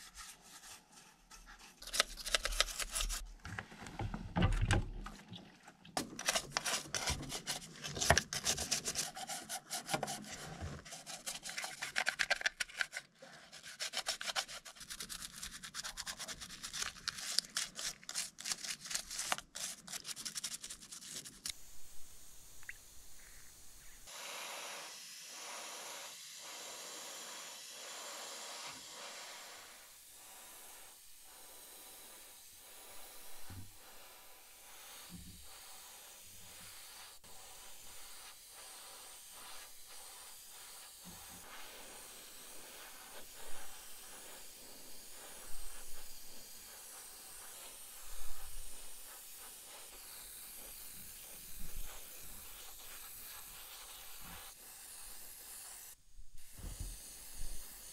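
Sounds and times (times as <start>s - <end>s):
airbrush hissing: 13.3s - 57.9s.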